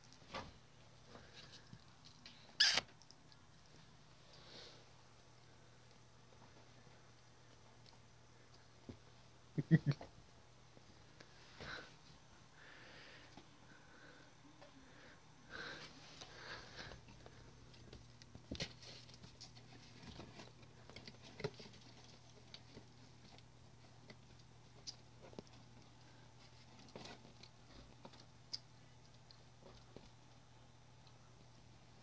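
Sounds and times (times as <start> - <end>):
low steady hum: 0.0 - 32.0
kitten paws tapping and scratching: 16.7 - 32.0.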